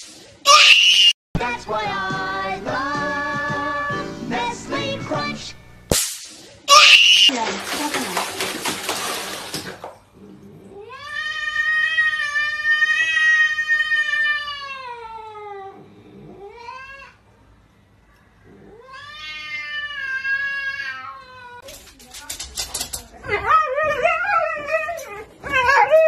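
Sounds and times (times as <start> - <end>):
cat yowling: 10.9 - 15.8, 18.7 - 21.7.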